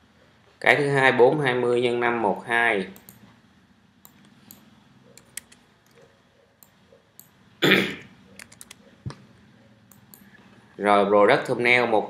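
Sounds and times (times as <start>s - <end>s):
keyboard key clicks: 8.4s - 9.2s.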